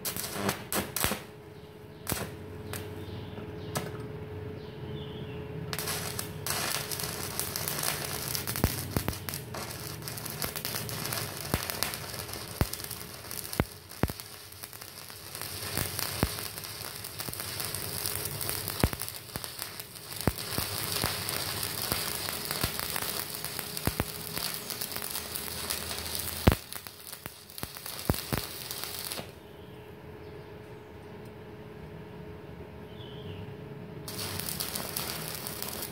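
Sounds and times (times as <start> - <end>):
welding arc crackling: 0.0 - 1.3, 2.0 - 3.0, 5.7 - 29.4, 34.1 - 35.9.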